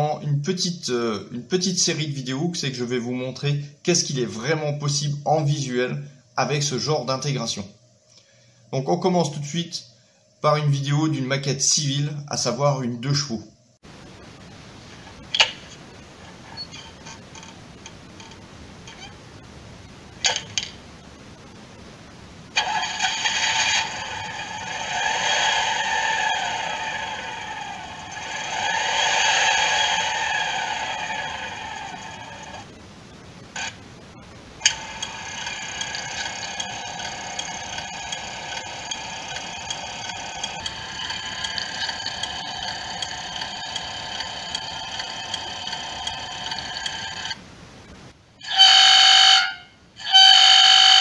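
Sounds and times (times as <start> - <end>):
car horn beep: 48.4 - 51.0.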